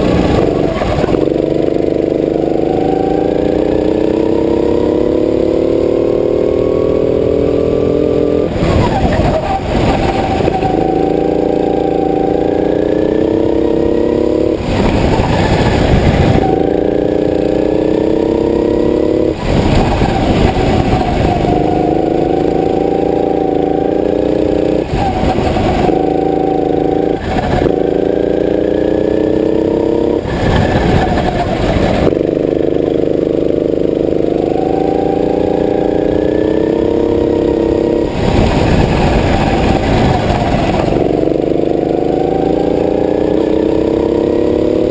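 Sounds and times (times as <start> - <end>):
go-kart engine revving: 0.0 - 44.9
loud rushing noise bursts: 14.6 - 16.5, 30.2 - 32.1, 38.0 - 41.3.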